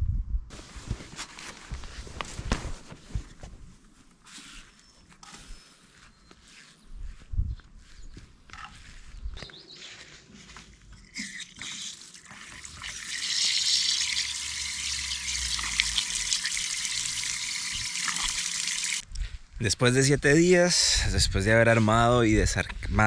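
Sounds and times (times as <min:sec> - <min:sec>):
water running and splashing: 0:11.2 - 0:19.0.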